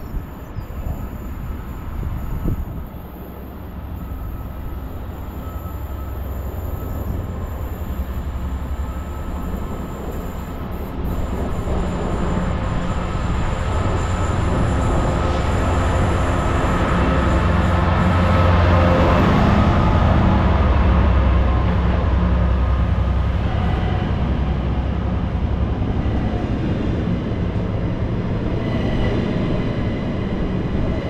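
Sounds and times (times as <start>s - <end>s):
diesel locomotive engine drone: 0.0s - 31.0s.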